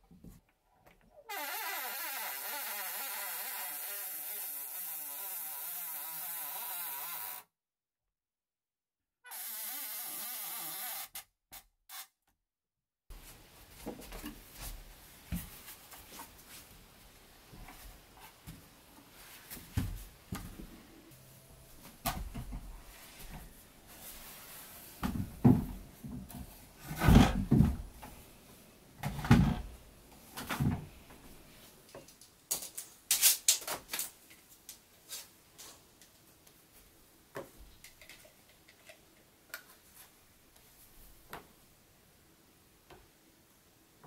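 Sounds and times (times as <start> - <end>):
wooden ladder knocks and thumps: 19.5 - 20.7, 21.8 - 23.5, 25.0 - 28.2, 29.0 - 29.8.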